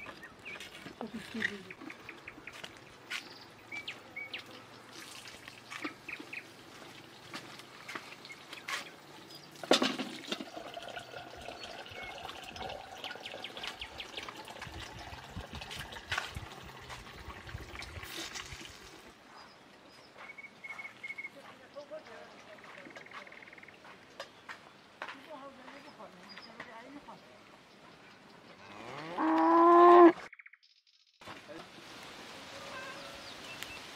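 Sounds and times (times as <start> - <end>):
water trickling from tap: 4.6 - 19.1
bird chirps: 19.3 - 24.8.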